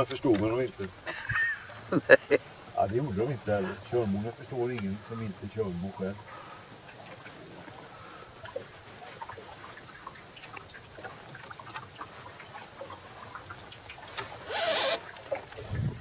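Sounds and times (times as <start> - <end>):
water lapping against hull: 0.0 - 16.0.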